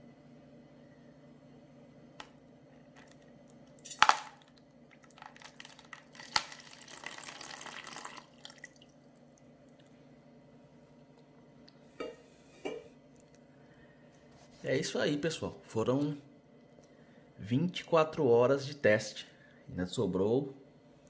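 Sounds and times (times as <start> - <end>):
water splashing into container: 4.9 - 9.0.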